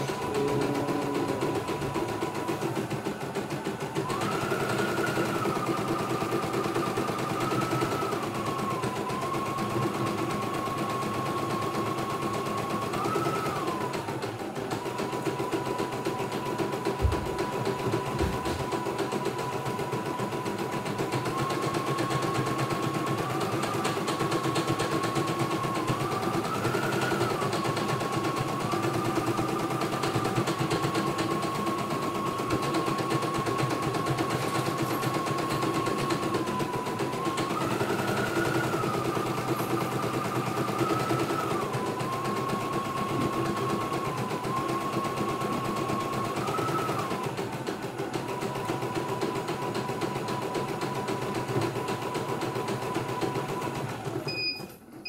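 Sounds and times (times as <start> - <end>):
motor whine: 0.0 - 47.3.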